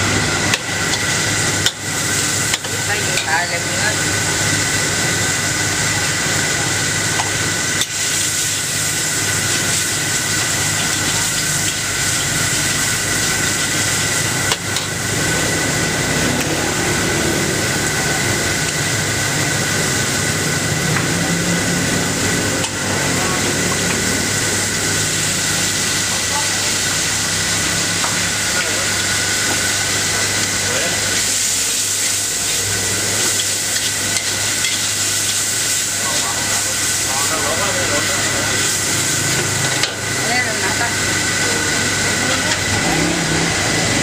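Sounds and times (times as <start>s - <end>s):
gas burner rushing: 0.0s - 44.0s
shrimp frying in oil: 0.0s - 44.0s.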